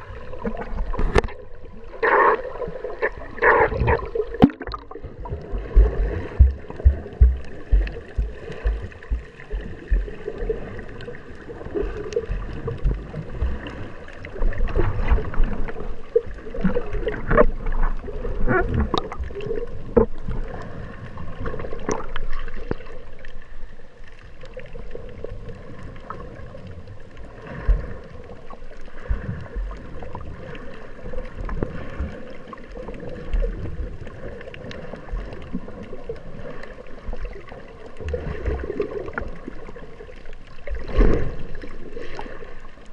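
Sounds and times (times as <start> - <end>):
water sloshing and gurgling: 0.0 - 42.9
low thumps: 5.7 - 10.1.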